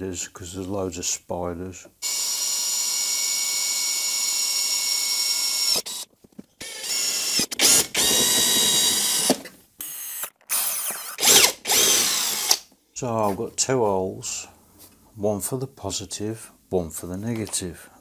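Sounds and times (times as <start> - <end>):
cordless drill whining: 2.0 - 12.6.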